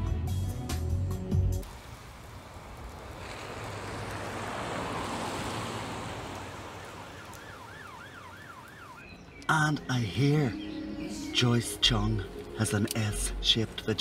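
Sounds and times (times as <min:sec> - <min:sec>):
car driving past: 0:02.0 - 0:07.7
faint wailing siren: 0:06.5 - 0:09.2.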